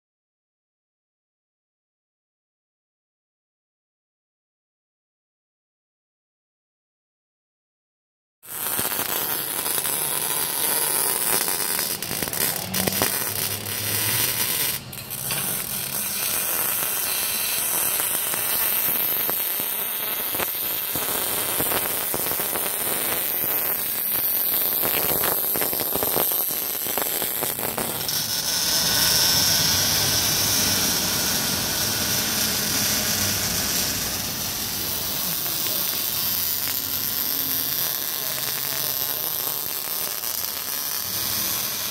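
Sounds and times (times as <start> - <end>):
welder crackling and sputtering: 8.4 - 41.9
shop work noise: 8.5 - 41.9.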